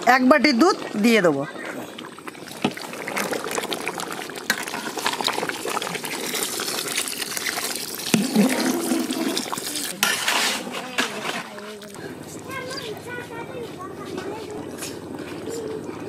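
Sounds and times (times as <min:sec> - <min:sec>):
curry bubbling in pan: 0:00.0 - 0:12.0
milk pouring and splashing: 0:00.5 - 0:12.1.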